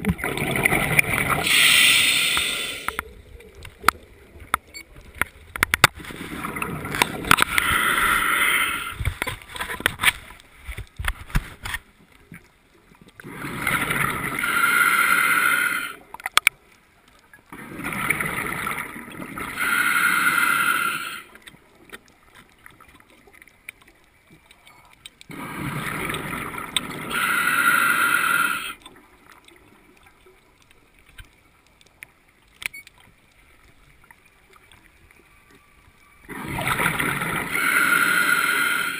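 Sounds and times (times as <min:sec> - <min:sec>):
scuba regulator breathing: 0:01.3 - 0:03.0, 0:07.2 - 0:09.2, 0:13.3 - 0:16.1, 0:19.4 - 0:21.4, 0:25.3 - 0:28.9, 0:36.3 - 0:38.9.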